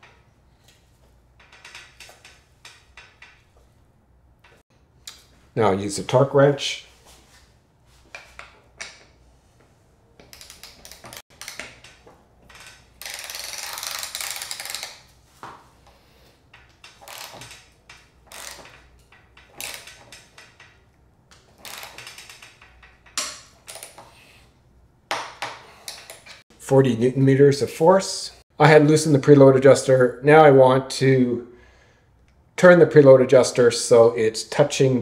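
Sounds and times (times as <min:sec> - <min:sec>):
ratcheting torque wrench clicking: 0:10.2 - 0:15.1, 0:16.6 - 0:20.8, 0:21.6 - 0:24.0.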